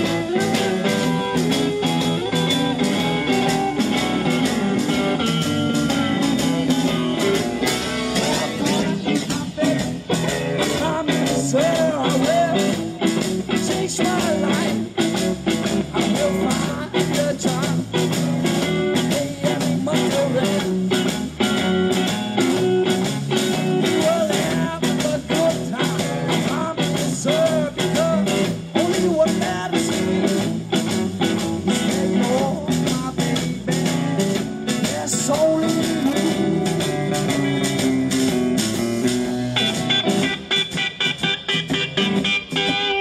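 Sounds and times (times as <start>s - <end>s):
man singing: 0.0s - 1.4s, 7.7s - 21.2s, 23.5s - 37.8s
blues-rock band playing: 0.0s - 43.0s.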